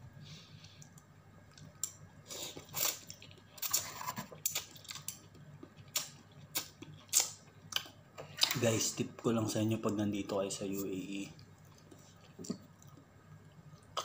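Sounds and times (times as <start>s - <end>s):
person chewing: 0.7s - 8.6s, 11.6s - 13.1s.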